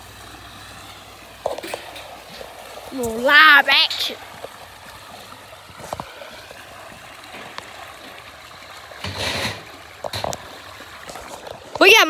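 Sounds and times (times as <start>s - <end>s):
fish splashing in water: 4.1s - 11.8s.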